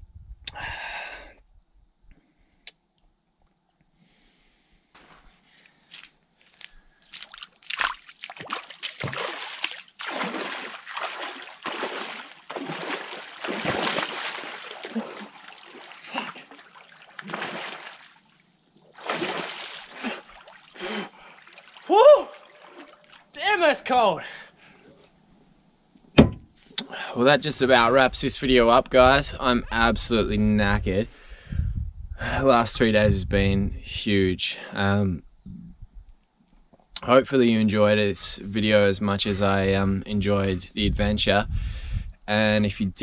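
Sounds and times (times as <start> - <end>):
water splashing and sloshing: 5.0 - 23.4.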